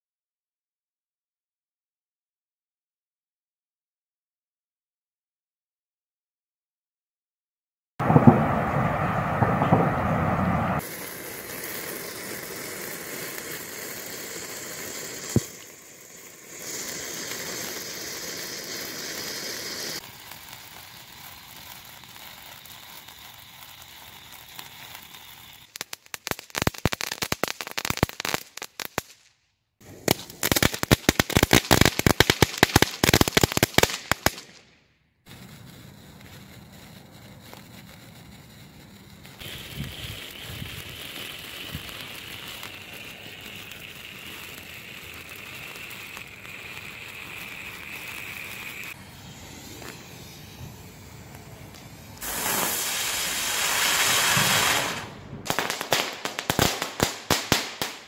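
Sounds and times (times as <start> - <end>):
firework fountain spraying hiss: 8.0 - 29.1, 29.8 - 58.0
fireworks rushing: 8.0 - 58.0
rapid firework crackling: 8.0 - 58.0
sharp firework crack: 8.0 - 58.0
sparkler fizzing: 10.8 - 29.1, 29.8 - 34.7, 35.3 - 58.0.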